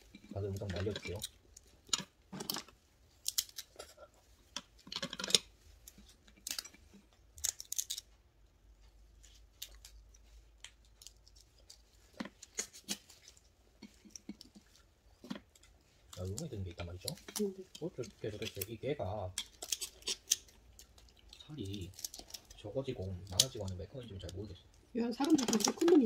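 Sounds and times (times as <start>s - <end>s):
crab shells snipped and cracked: 2.0s - 3.8s, 7.4s - 8.1s, 10.6s - 13.1s, 19.4s - 22.6s, 23.2s - 23.7s.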